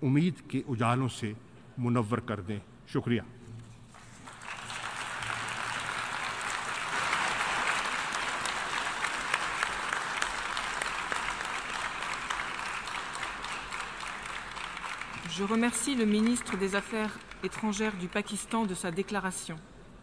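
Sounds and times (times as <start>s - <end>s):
audience applauding: 3.9s - 18.2s.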